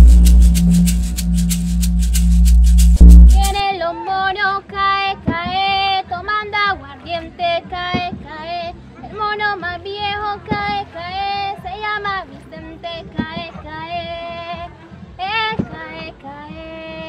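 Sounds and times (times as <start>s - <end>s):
music with heavy bass: 0.0s - 3.6s
girl singing unaccompanied: 3.3s - 17.0s.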